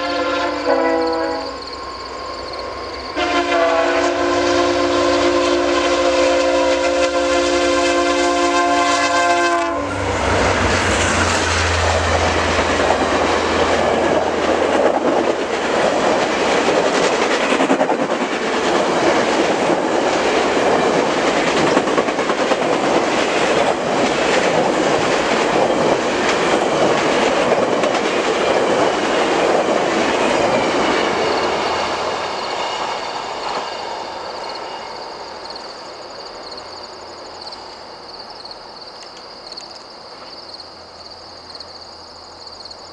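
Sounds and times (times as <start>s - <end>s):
diesel locomotive engine: 0.0s - 38.1s
train wheels clickety-clack: 10.2s - 34.7s.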